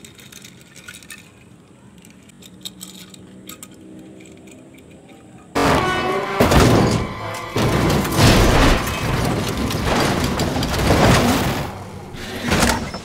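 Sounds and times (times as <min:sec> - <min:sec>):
dirt scattering: 0:05.5 - 0:13.0
heavy crash booms and impacts: 0:05.6 - 0:13.0.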